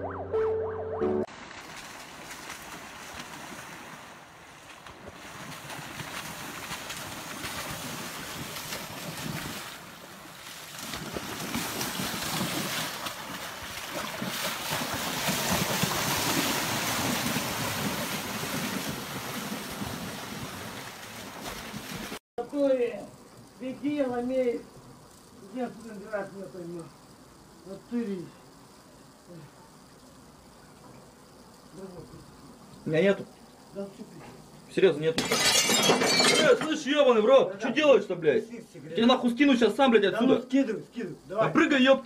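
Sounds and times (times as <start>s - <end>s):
animal splashing through water: 1.3s - 22.2s
shallow river rushing: 1.3s - 22.2s.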